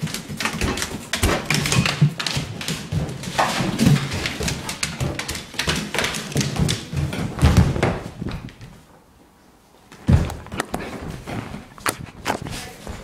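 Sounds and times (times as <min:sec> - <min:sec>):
scuffling knocks and rustles: 0:00.0 - 0:08.9.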